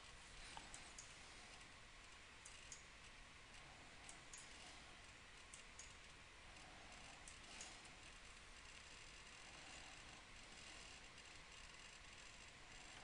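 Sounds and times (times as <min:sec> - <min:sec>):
computer mouse clicks: 0:02.4 - 0:02.9, 0:04.0 - 0:04.6, 0:05.4 - 0:06.2.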